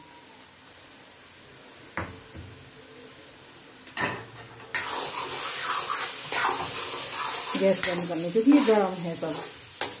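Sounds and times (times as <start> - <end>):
spatula scraping and stirring: 4.7 - 10.0.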